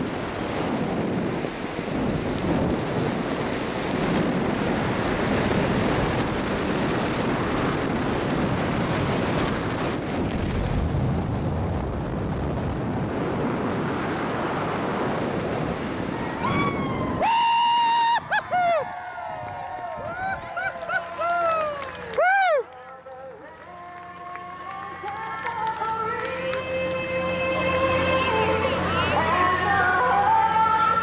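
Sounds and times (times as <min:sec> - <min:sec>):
strong wind rushing over microphone: 0:00.0 - 0:20.7.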